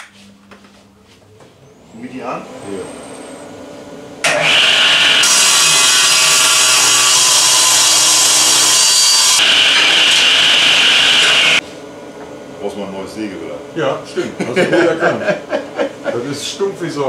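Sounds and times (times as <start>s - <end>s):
table saw blade whine: 4.2s - 11.6s
table saw cutting wood: 4.2s - 11.6s.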